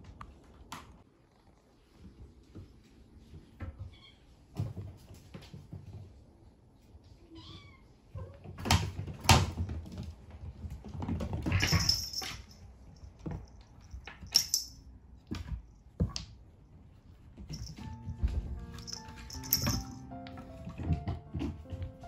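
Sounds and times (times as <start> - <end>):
balls rattling: 11.0 - 16.2, 17.4 - 22.0.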